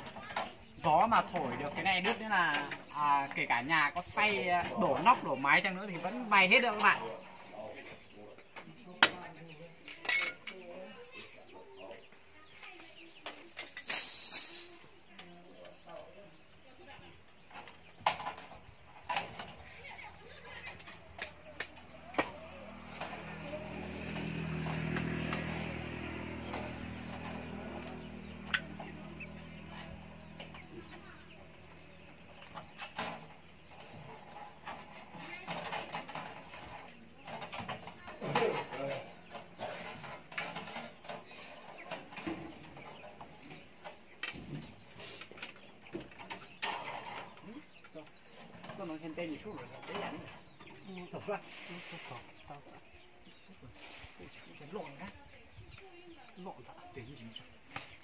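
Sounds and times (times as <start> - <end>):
knocks and clinks on metal roof: 32.5 - 44.8.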